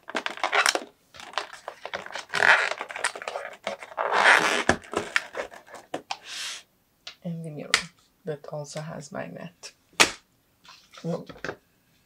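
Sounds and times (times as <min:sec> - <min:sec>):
packaging scraping and rustling: 0:00.0 - 0:06.0.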